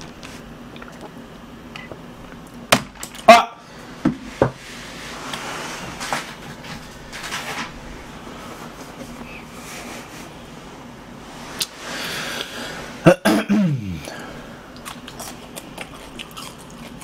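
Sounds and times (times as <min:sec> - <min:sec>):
soft rustling: 0:04.6 - 0:12.0.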